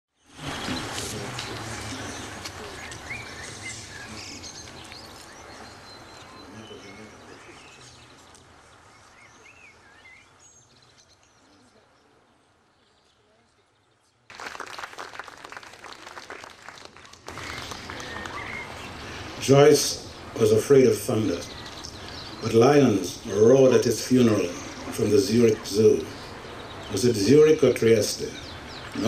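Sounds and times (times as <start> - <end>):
birds chirping: 0.1 - 14.5, 16.9 - 29.0
loud crackling noise: 0.3 - 6.0, 14.3 - 29.0.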